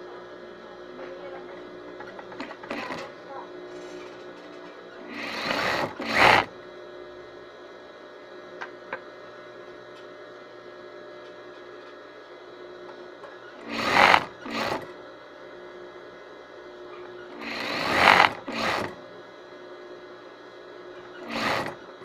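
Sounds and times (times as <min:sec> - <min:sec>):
steady hum: 0:00.0 - 0:22.0
sewing machine stitching: 0:02.2 - 0:03.1, 0:05.0 - 0:06.5, 0:13.6 - 0:15.0, 0:17.1 - 0:19.1, 0:21.1 - 0:21.9.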